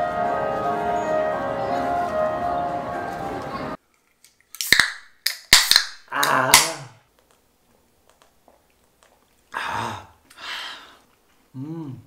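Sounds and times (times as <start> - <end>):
cans cracked open with fizz: 4.3 - 6.7
short vocal sound: 6.1 - 7.0, 11.5 - 12.0.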